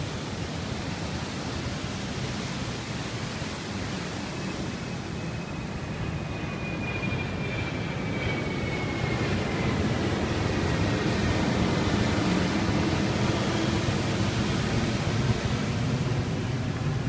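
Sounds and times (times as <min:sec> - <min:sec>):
wind rumble on microphone: 0:00.0 - 0:17.0
ocean surf breaking: 0:09.2 - 0:17.0.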